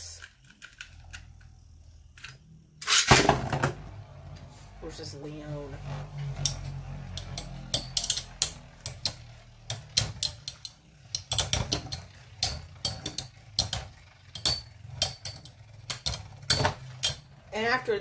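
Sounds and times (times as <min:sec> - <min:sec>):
spinning tops clashing metallically: 0:06.4 - 0:17.8.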